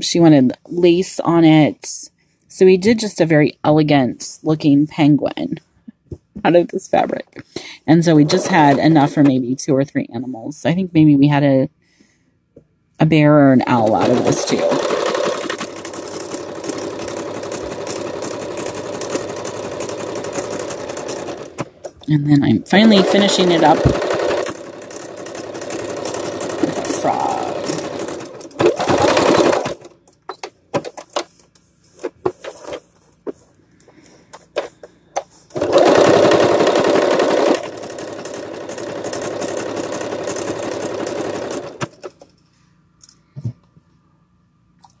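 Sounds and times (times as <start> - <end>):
sewing machine stitching: 8.0 - 9.3, 13.6 - 22.1, 22.7 - 31.2, 35.5 - 42.3.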